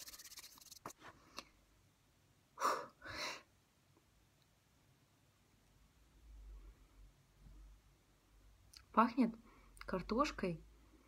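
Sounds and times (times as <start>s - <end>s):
hands rubbing together: 0.0s - 1.0s.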